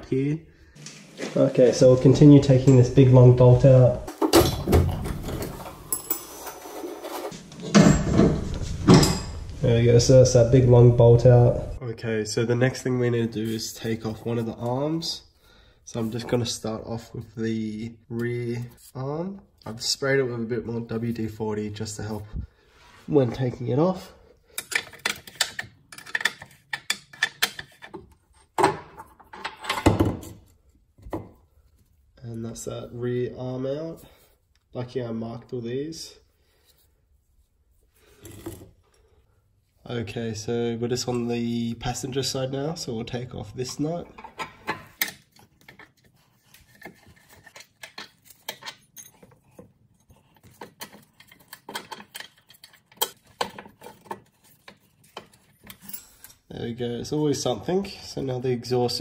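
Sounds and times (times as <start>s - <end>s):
metal scrapes and knocks: 4.1s - 9.6s
metal nut and washer clinking: 5.3s - 6.8s, 43.6s - 56.4s.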